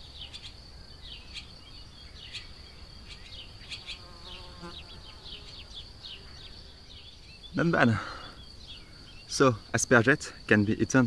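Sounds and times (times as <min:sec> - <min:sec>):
small birds chirping: 0:00.0 - 0:11.0
insect buzzing past: 0:02.2 - 0:07.6.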